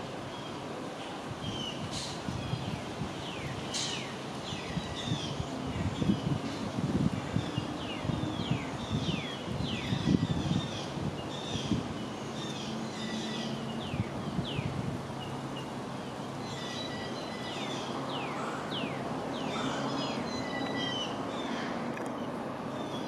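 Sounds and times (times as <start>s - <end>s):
birds whistling and chattering: 7.2s - 23.0s.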